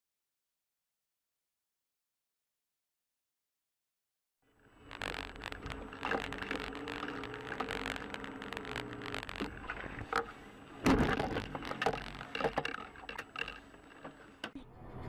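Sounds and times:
clicks and scrapes: 4.8 - 14.6.

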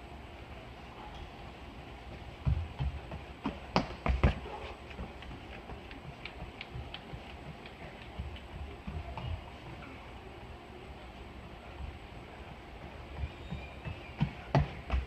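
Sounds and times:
running footsteps on wooden floor: 2.1 - 9.8, 12.8 - 15.0.

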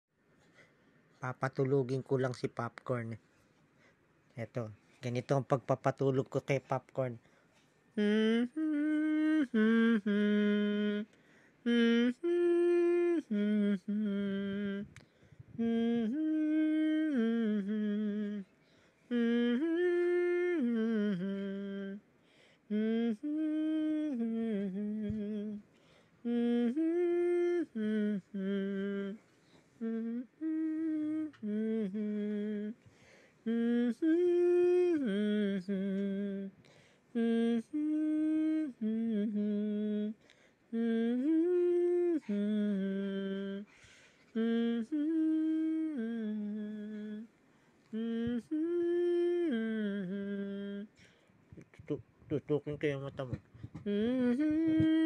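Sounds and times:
person humming a slow tune: 8.0 - 18.5, 19.1 - 22.0, 22.7 - 25.6, 26.2 - 32.8, 33.4 - 47.3, 47.9 - 51.0, 53.2 - 55.0.

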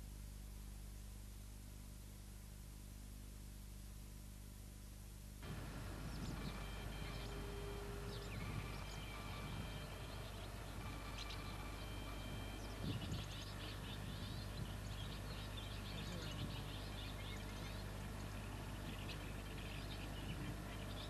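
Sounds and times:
small birds chirping: 5.4 - 21.0.

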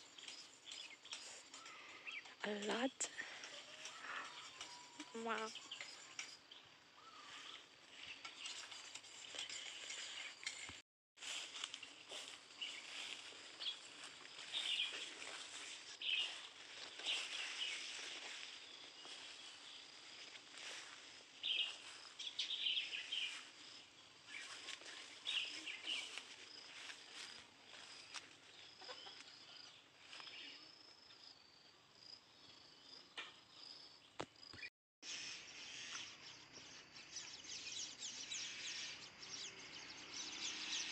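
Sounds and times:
bird chirps: 3.4 - 10.6, 21.4 - 30.7.

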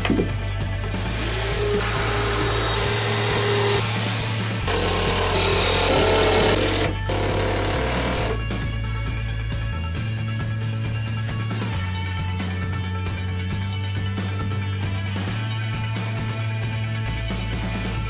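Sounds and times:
electric drill whining: 1.0 - 8.5.

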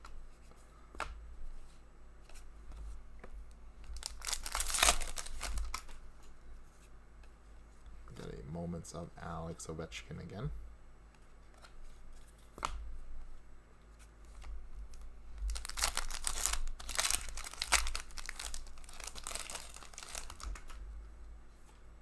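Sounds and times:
foil wrapper tearing and crinkling: 3.9 - 6.0, 14.9 - 20.8.

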